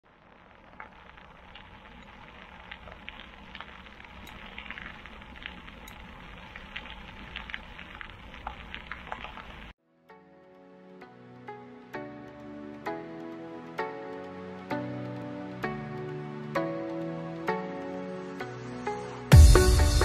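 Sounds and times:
bike tyres crackling on gravel: 0.0s - 9.8s
soft music: 9.8s - 20.0s.

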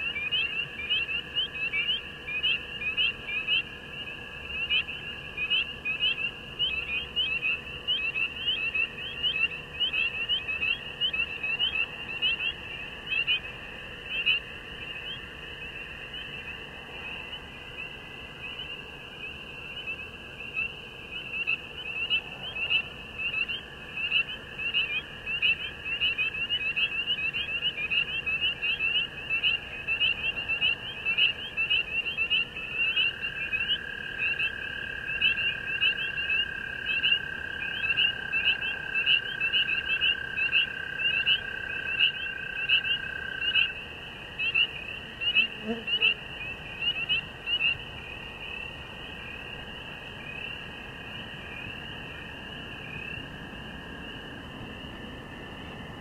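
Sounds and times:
frogs peeping: 0.0s - 56.0s.

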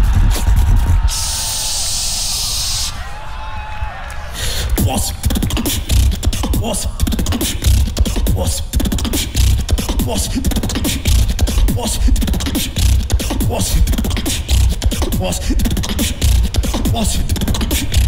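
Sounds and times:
deep vocal bass: 0.0s - 1.2s, 4.6s - 18.0s
vocal beatboxing: 4.6s - 18.0s.

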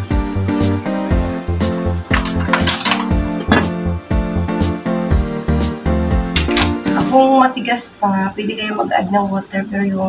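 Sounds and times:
background music with beat: 0.0s - 7.3s
metal ladle scraping pan: 2.1s - 3.8s.

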